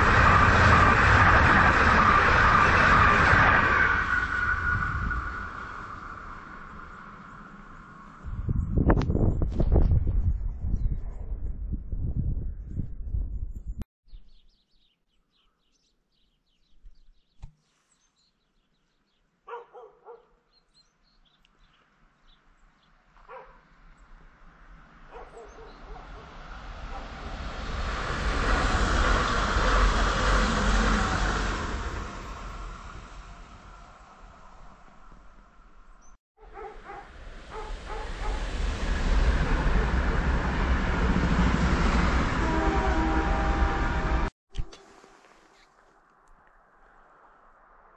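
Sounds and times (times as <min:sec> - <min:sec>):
approaching electric train rushing: 0:00.0 - 0:08.8, 0:24.2 - 0:36.0, 0:36.8 - 0:45.4
small birds chirping: 0:14.1 - 0:24.2
dog barking: 0:19.4 - 0:20.4, 0:23.2 - 0:23.6, 0:25.1 - 0:26.3, 0:36.4 - 0:38.4.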